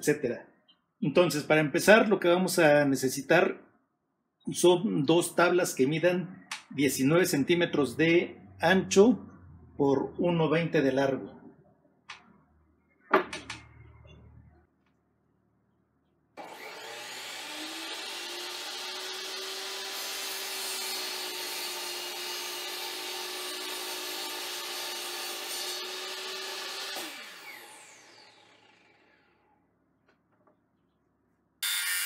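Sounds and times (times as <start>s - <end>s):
miter saw cutting wood: 16.4s - 29.5s, 31.6s - 32.0s
saw spinning down whine: 16.4s - 29.5s.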